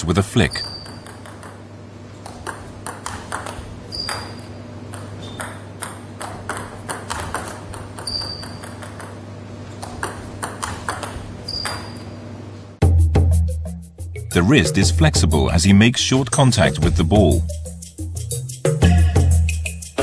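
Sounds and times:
table tennis ball clicking: 0:00.6 - 0:01.6, 0:02.2 - 0:09.2, 0:09.8 - 0:12.0.

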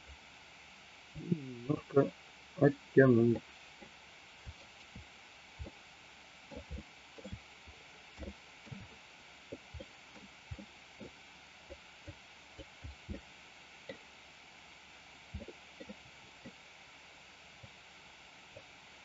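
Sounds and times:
microphone hiss: 0:00.0 - 0:19.0
soft low thumps: 0:06.5 - 0:07.4, 0:08.2 - 0:11.1, 0:15.3 - 0:16.0.

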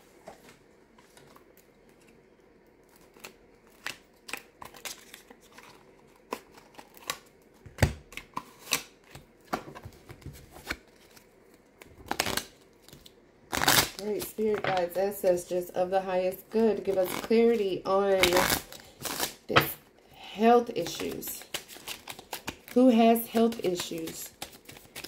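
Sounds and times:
cards being shuffled: 0:20.8 - 0:25.0.

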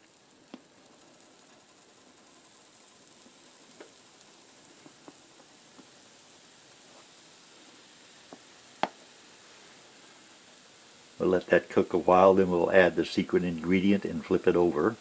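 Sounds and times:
small ticks: 0:00.0 - 0:11.2
batter sizzling in a frying pan: 0:00.0 - 0:15.0.

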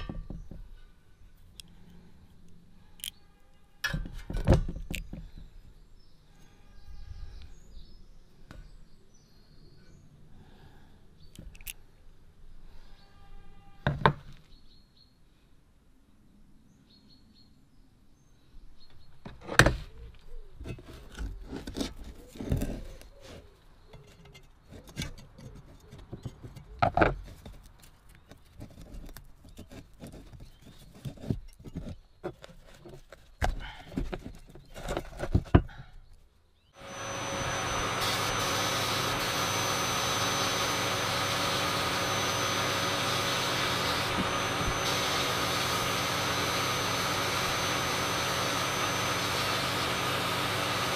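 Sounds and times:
metal parts knocking and scraping: 0:11.4 - 0:11.8, 0:20.6 - 0:35.7.

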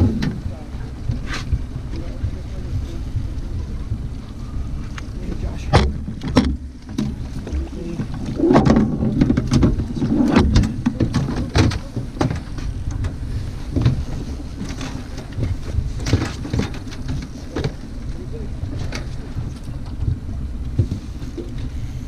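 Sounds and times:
boat motor rumbling: 0:00.0 - 0:22.0
wind on microphone: 0:00.0 - 0:22.0
knocks and clatter on deck: 0:05.5 - 0:17.8.

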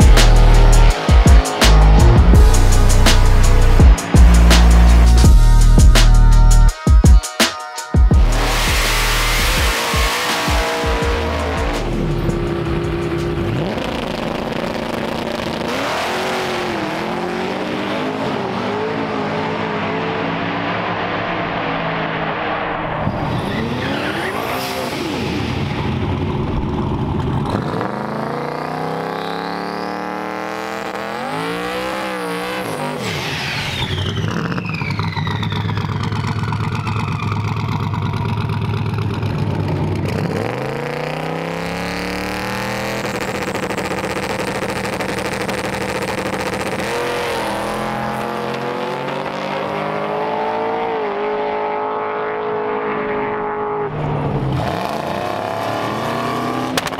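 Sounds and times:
race car engines revving: 0:00.0 - 0:06.7, 0:08.2 - 0:56.9
tires squealing: 0:08.2 - 0:38.5, 0:40.0 - 0:51.5.

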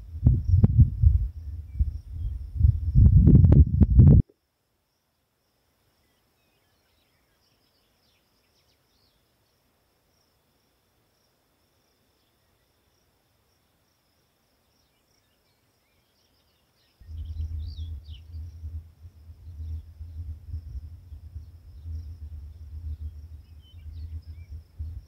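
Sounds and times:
low rumbling hum: 0:00.0 - 0:04.2, 0:17.0 - 0:25.0
insect song: 0:00.0 - 0:25.0
faint bird chirps: 0:00.4 - 0:03.1, 0:04.4 - 0:10.8, 0:11.6 - 0:25.0.

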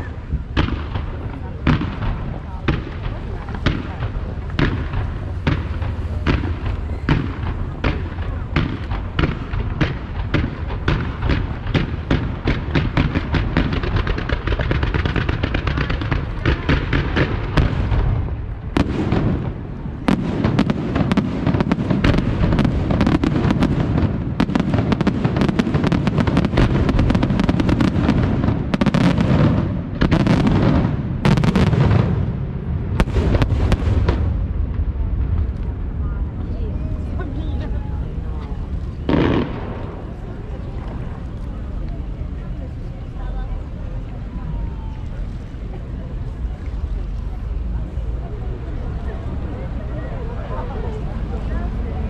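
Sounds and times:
fireworks bangs: 0:00.0 - 0:52.0
low rumble: 0:29.6 - 0:48.1.

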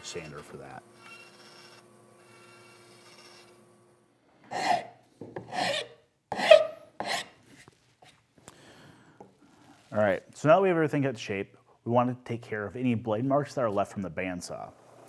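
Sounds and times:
faint bandsaw running: 0:00.0 - 0:03.8.

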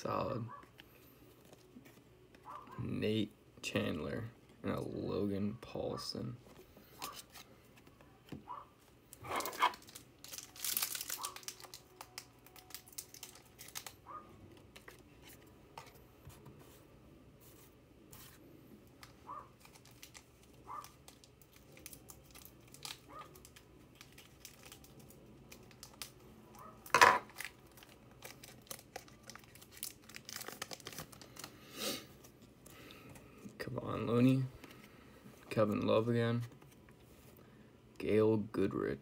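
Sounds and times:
wrapper crinkling and tearing: 0:09.1 - 0:14.1, 0:19.6 - 0:31.6
wrapper ripping sharply: 0:09.2 - 0:14.0.

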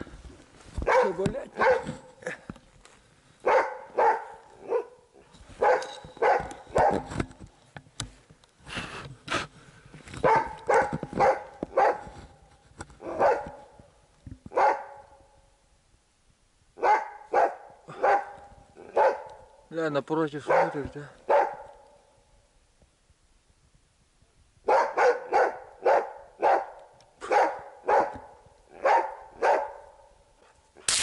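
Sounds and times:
dog barking: 0:00.8 - 0:02.1, 0:03.4 - 0:05.0, 0:05.6 - 0:07.1, 0:10.2 - 0:12.1, 0:13.0 - 0:13.7, 0:14.5 - 0:15.2, 0:16.8 - 0:19.5, 0:20.4 - 0:22.0, 0:24.7 - 0:30.1.

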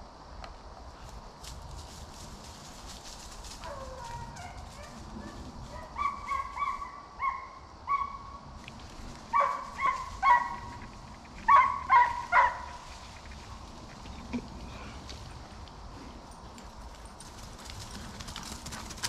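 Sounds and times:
hound baying: 0:03.6 - 0:08.4, 0:09.3 - 0:14.2.

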